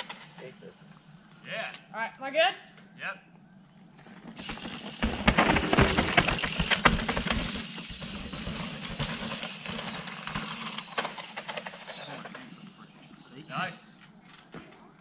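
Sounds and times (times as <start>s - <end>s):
bike tyres crunching on gravel: 3.9s - 12.7s
stones clattering: 4.2s - 9.9s.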